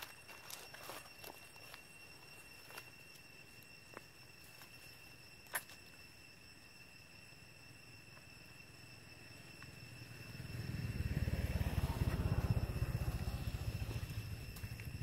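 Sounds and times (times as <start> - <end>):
passing motorbike engine rumble: 9.6 - 15.0.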